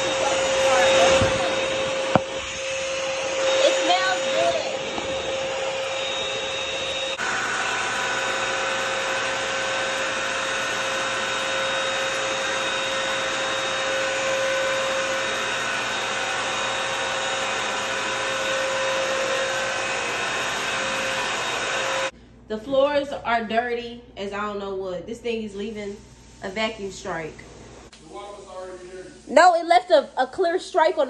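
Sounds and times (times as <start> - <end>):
wet-dry vacuum running: 0.0 - 22.1.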